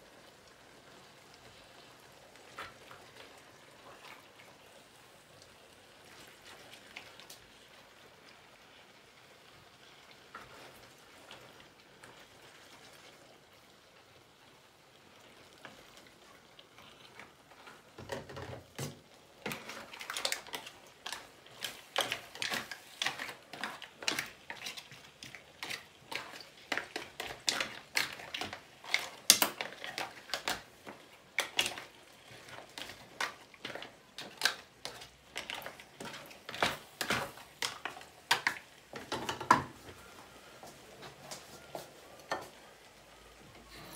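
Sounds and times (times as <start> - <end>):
faint sizzle: 0.0 - 43.9
spoon scraping frying pan: 16.7 - 42.6.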